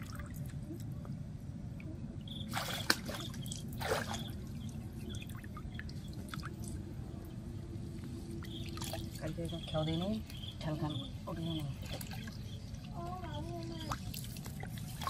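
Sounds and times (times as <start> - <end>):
water dripping and sloshing: 0.0 - 1.2, 1.8 - 15.0
sharp splashes on water: 2.4 - 4.4.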